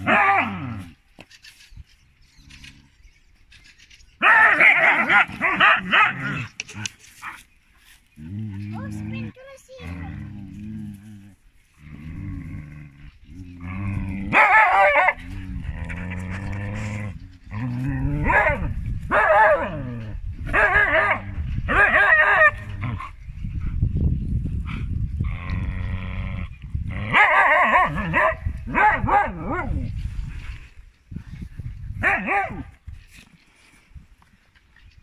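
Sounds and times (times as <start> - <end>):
dogs yowling: 4.2 - 6.5, 13.4 - 23.0, 26.9 - 29.8
dogs growling: 8.1 - 18.8, 24.6 - 30.0.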